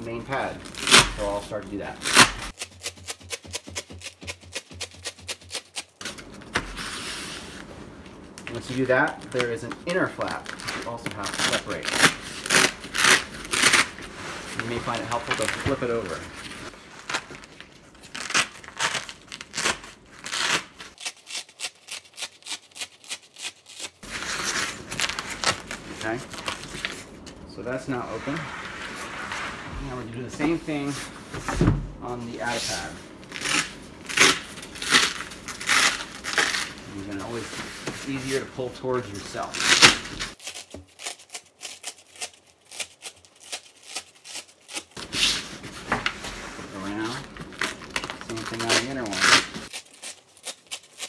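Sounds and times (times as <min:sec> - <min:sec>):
velcro ripping apart: 0:00.4 - 0:06.2, 0:08.7 - 0:16.2, 0:16.9 - 0:27.1, 0:32.7 - 0:37.4, 0:39.3 - 0:45.6, 0:46.7 - 0:51.0.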